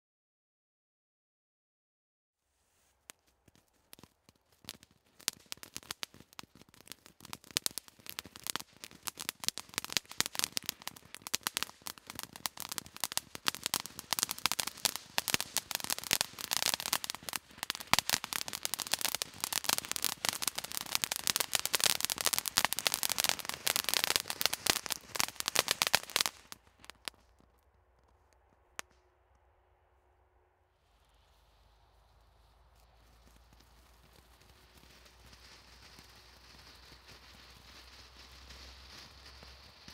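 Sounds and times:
firework fountain crackling: 0:02.8 - 0:29.0, 0:30.9 - 0:39.9.

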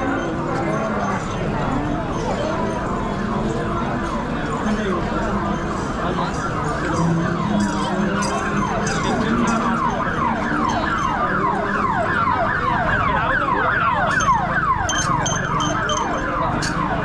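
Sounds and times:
street noise: 0:00.0 - 0:17.0
siren in falling sweeps: 0:06.2 - 0:17.0.

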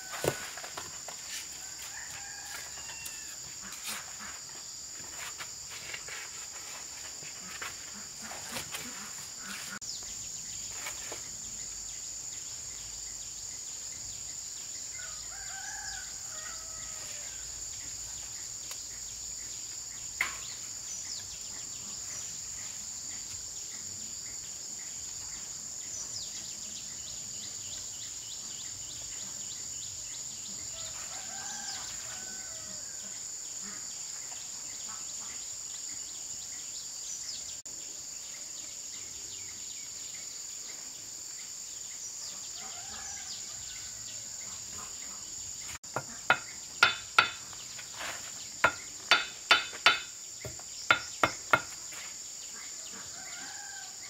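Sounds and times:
insects droning: 0:00.0 - 0:54.0
rooster crowing faintly: 0:01.5 - 0:04.0
sharp knocks: 0:45.9 - 0:47.4, 0:48.6 - 0:51.8.

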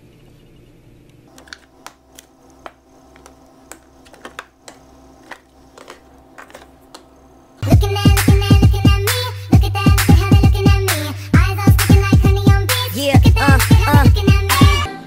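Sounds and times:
faint steady hum: 0:00.0 - 0:15.0
spice containers clicking together: 0:01.3 - 0:07.1.

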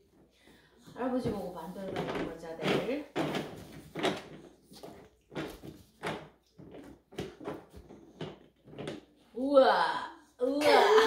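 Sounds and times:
plastic toys knocking: 0:01.0 - 0:09.1.

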